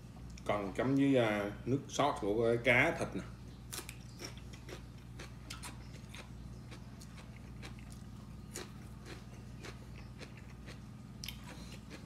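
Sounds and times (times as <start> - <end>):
steady low hum: 0.0 - 12.0
chewing crunchy vegetable: 3.6 - 12.0.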